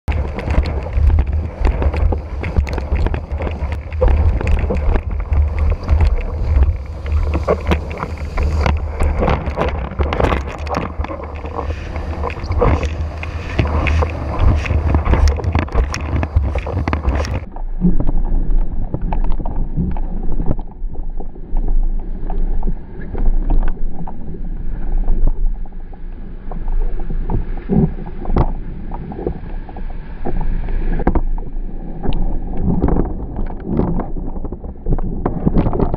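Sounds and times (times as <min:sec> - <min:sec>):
wind buffeting microphone: 0:00.0 - 0:17.5
water rushing under board: 0:00.0 - 0:35.9.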